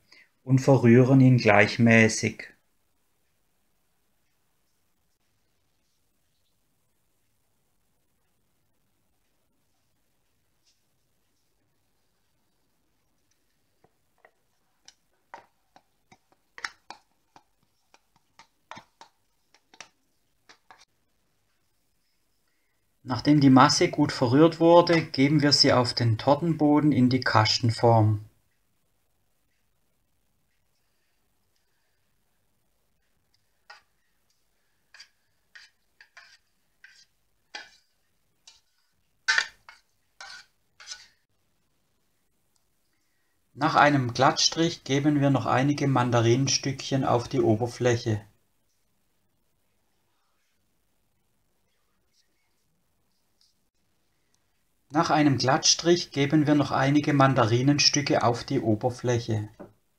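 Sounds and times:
spoon scraping plastic tub: 13.3 - 20.9, 33.3 - 41.2.

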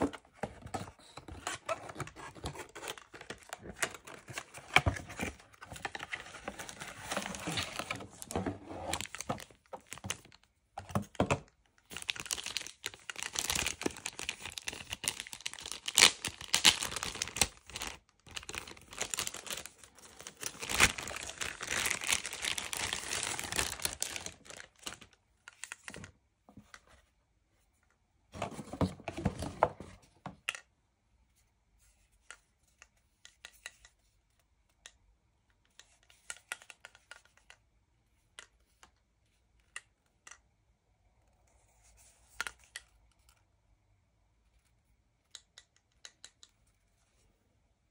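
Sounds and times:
cardboard rustling and tearing: 0.0 - 10.2, 12.0 - 25.0.

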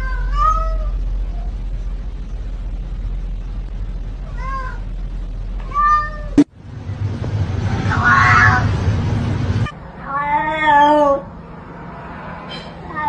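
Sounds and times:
cat meowing: 0.0 - 1.0, 4.3 - 4.8, 5.6 - 6.4, 7.9 - 8.7, 10.0 - 11.3
steady low hum: 0.0 - 10.3.

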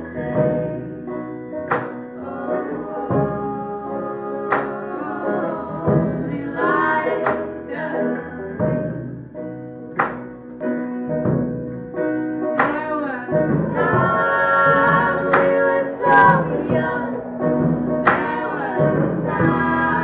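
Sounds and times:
women singing in harmony: 0.0 - 1.1, 2.1 - 9.1, 12.7 - 20.0
banjo: 0.0 - 20.0
drums: 0.0 - 20.0
guitar: 0.0 - 20.0
upright bass: 0.0 - 20.0.

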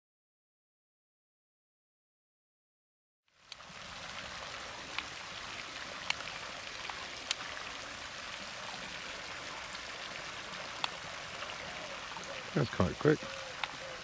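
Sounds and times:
running water trickling: 3.3 - 14.0.

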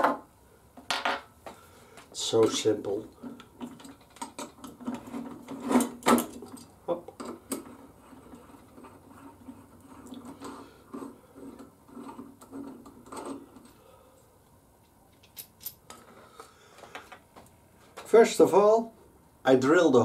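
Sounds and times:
small metal parts clinking: 15.1 - 16.0.

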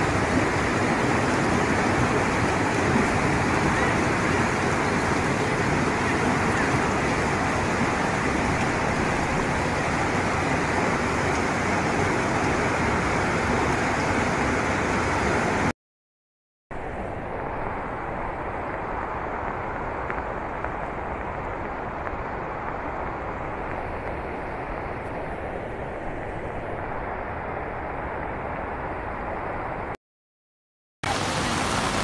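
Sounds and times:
floodwater rushing: 0.0 - 15.7, 31.0 - 32.0.

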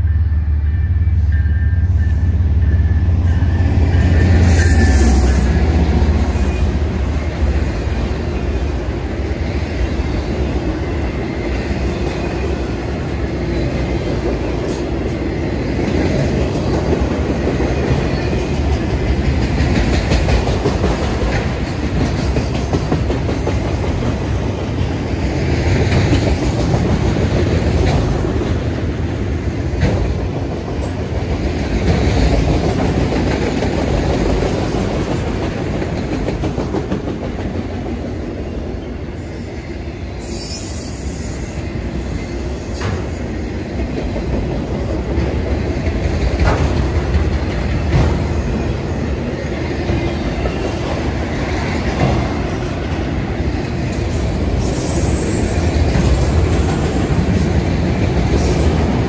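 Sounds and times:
train cars rumbling on rails: 0.0 - 59.0
high-pitched wheel squeal: 0.6 - 6.7.

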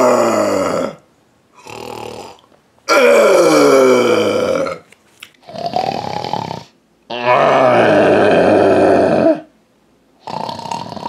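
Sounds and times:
man snoring comically: 1.6 - 4.8, 5.4 - 9.4, 10.2 - 11.0.

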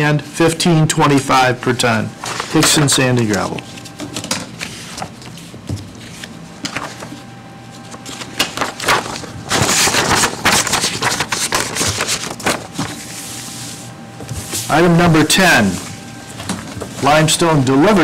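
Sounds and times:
paper rustling: 1.0 - 14.8.

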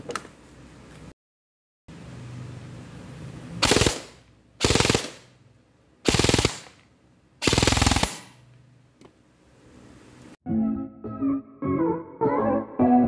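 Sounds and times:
airsoft gun full-auto bursts: 3.6 - 5.4, 6.0 - 6.8, 7.4 - 8.4.

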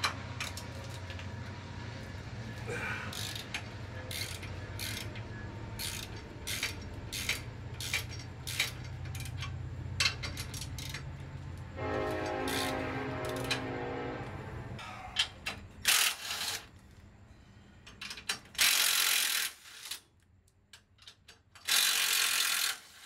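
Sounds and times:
passing train rumble: 0.0 - 15.8
ratchet wrench clicking: 3.1 - 11.2, 12.5 - 12.7, 15.4 - 16.7, 17.9 - 20.0, 20.7 - 23.0.

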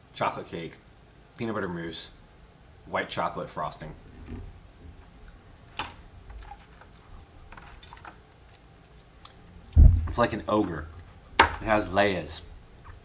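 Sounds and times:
low thump: 9.8 - 10.2.

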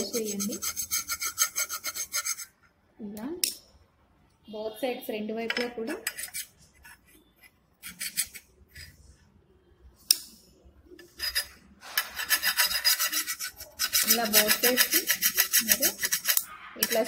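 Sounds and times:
screwdriver scraping knife blade: 0.0 - 2.5, 6.0 - 7.0, 7.8 - 9.0, 11.0 - 17.0.

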